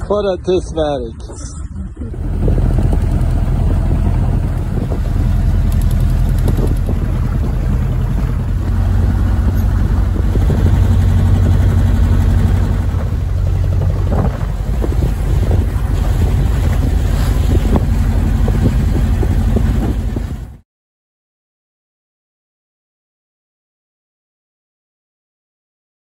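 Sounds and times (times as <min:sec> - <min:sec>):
wind and water rushing: 0:00.0 - 0:20.6
boat motor droning: 0:01.2 - 0:20.6.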